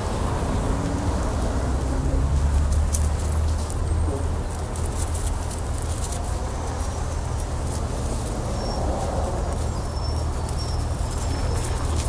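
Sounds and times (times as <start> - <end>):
city traffic rumble: 0.0 - 12.0.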